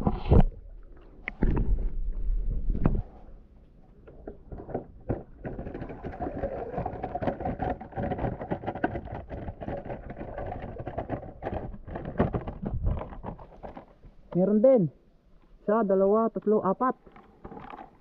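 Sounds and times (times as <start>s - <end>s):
water pouring and splashing: 5.4s - 13.8s.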